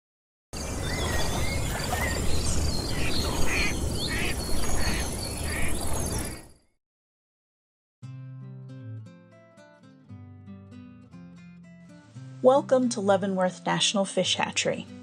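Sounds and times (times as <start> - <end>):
whistled bird calls: 0.6 - 6.5
duck quacking: 3.0 - 5.7.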